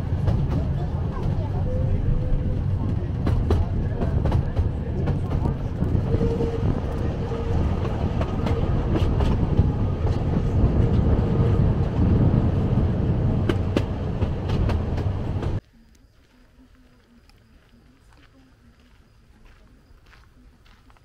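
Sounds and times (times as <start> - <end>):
train rumbling on rails: 0.0 - 15.6.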